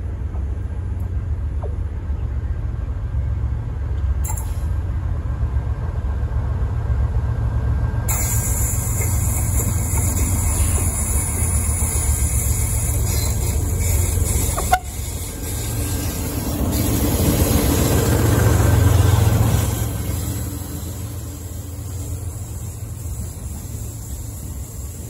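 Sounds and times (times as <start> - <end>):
diesel locomotive passing: 0.0 - 25.0.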